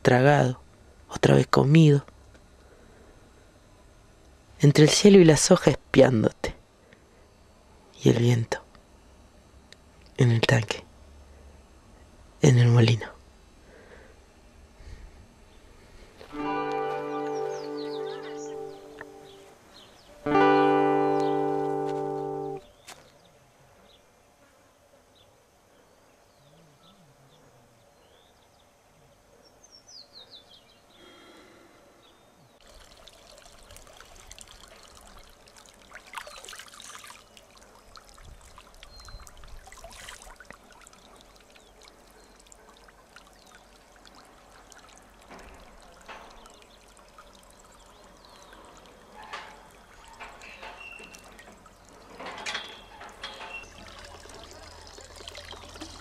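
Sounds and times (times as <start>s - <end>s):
bird chirps: 17.0s - 20.3s, 38.8s - 39.4s, 47.7s - 54.8s
water sloshing in tank: 32.6s - 56.0s.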